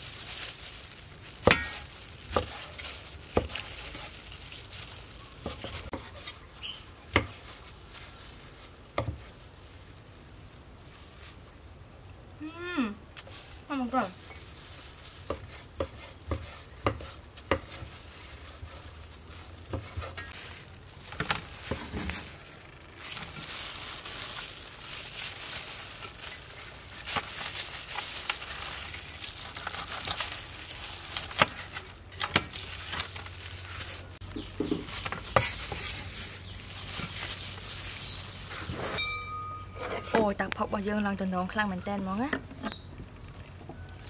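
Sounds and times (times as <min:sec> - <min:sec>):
crackly hiss of crisp meat: 0:00.0 - 0:12.3, 0:13.1 - 0:34.2, 0:34.8 - 0:39.0.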